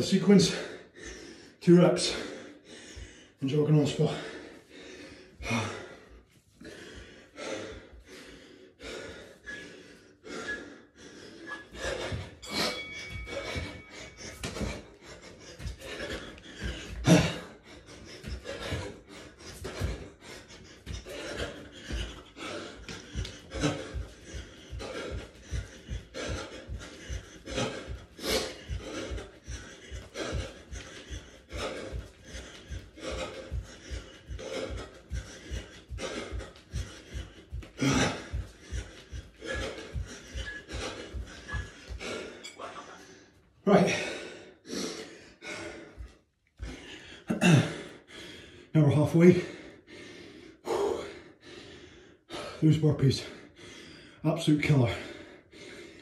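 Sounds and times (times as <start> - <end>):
man panting hard: 0.0 - 56.0.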